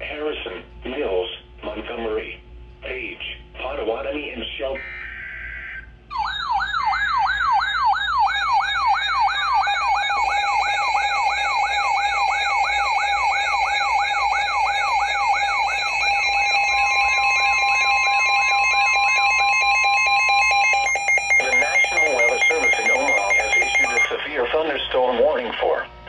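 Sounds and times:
electronic siren yelping: 4.8 - 24.2
steady siren tone: 4.8 - 24.4
higher steady tone: 9.0 - 24.1.

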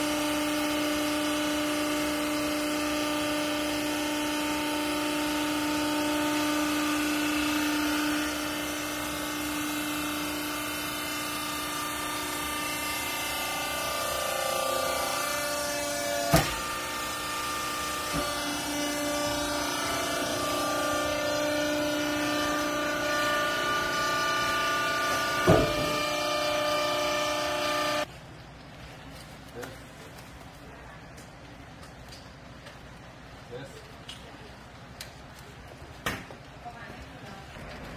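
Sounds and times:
hydraulic pump whine: 0.0 - 28.1
sharp knocks: 25.4 - 26.1.

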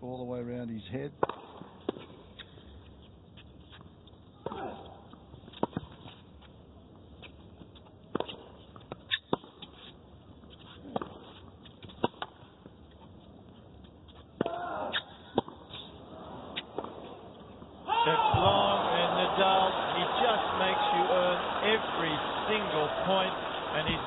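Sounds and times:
tennis ball bounces: 1.2 - 2.5, 8.1 - 9.7, 10.9 - 12.5
tennis racquet strikes: 1.2 - 2.5, 10.9 - 12.5.

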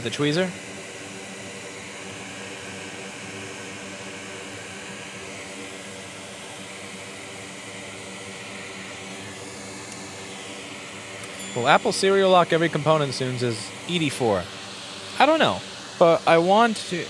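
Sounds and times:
fan whirring: 0.0 - 17.0.

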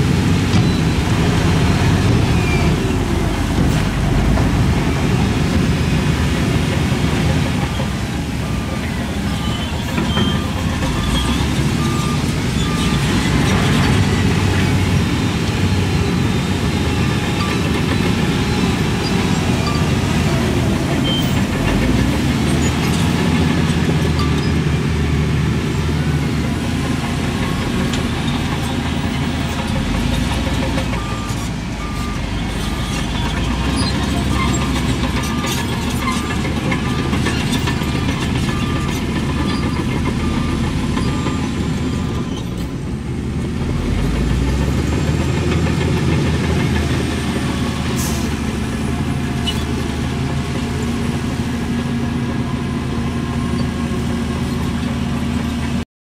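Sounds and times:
heavy machinery diesel engines: 0.0 - 55.8
reversing alarm beeping: 30.9 - 33.2.

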